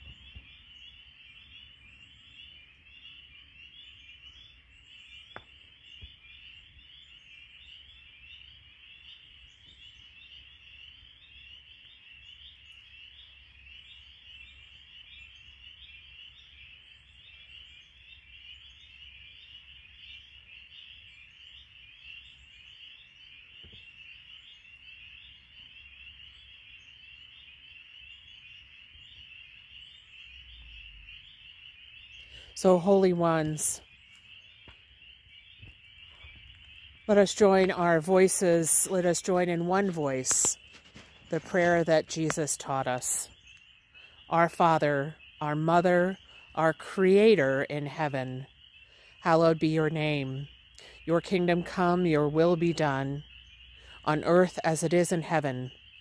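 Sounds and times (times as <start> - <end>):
frogs peeping chorus: 0.0 - 56.0.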